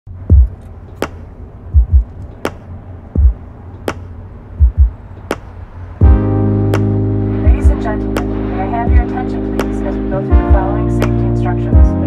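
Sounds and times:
low hum: 0.1 - 12.0
kick drum thumps: 0.2 - 0.5, 1.7 - 2.6, 3.2 - 4.0, 4.6 - 5.0, 6.0 - 6.3, 11.8 - 12.0
sharp drum crack: 0.3 - 6.9.

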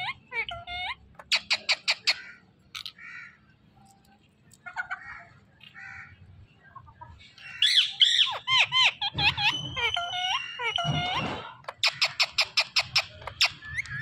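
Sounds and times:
parakeet squawking: 0.0 - 3.4, 7.4 - 14.0.

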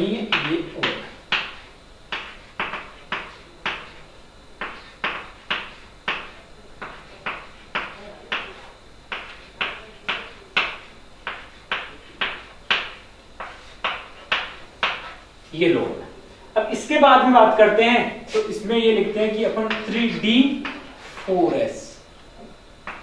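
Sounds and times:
chalk tapping on chalkboard: 0.2 - 15.3, 19.6 - 21.3.

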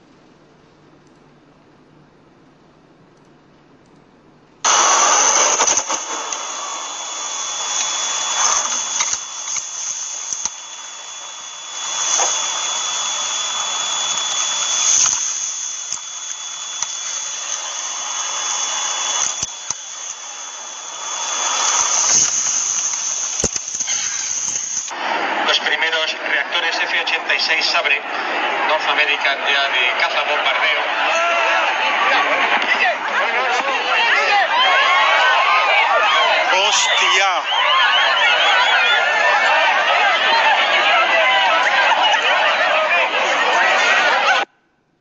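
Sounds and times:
thin high whine: 4.6 - 26.2, 33.3 - 44.5.

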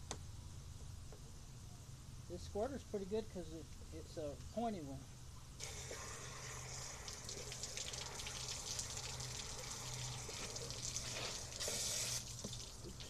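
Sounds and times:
hose spraying water: 5.6 - 13.0
water splashing on coffee maker: 5.6 - 13.0.

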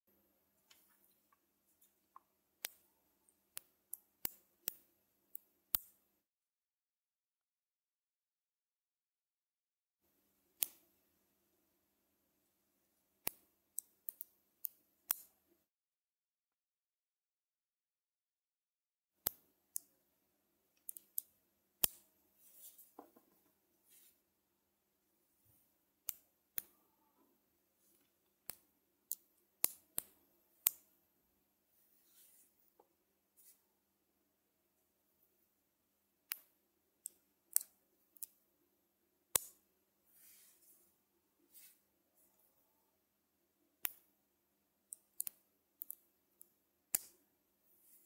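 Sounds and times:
soft handling sounds: 21.9 - 24.4, 31.7 - 33.8, 40.1 - 42.7, 47.6 - 48.0.

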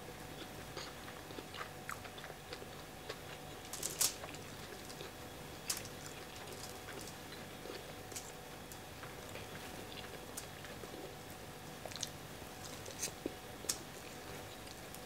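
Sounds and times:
chewing and mouth smacks: 0.6 - 3.4, 11.8 - 12.2
sharp food crackle: 3.1 - 10.8, 11.9 - 15.0.

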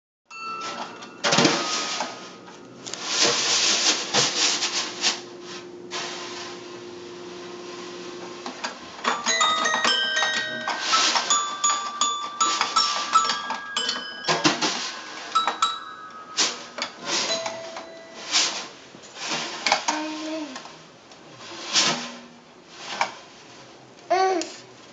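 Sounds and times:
snare drum strokes: 0.6 - 2.4, 10.6 - 13.2, 14.3 - 19.6, 21.4 - 22.2
toy piano notes: 9.0 - 18.5.

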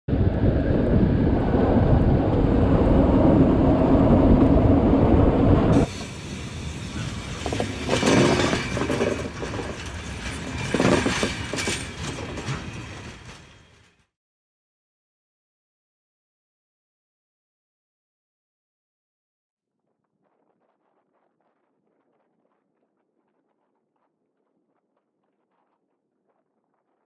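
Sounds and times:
train rumbling over track: 0.1 - 14.0.

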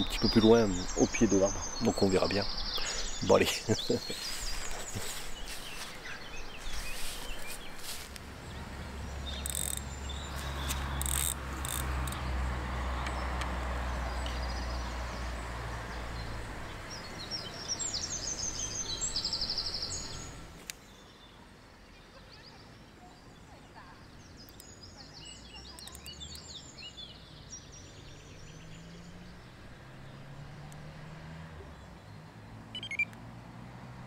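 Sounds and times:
small bird trilling: 32.8 - 33.1.

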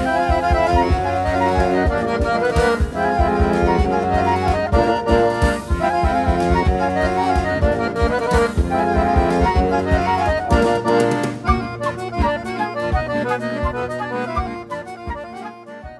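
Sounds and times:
steady drum beat: 0.0 - 15.4
accordion music: 0.0 - 15.9.

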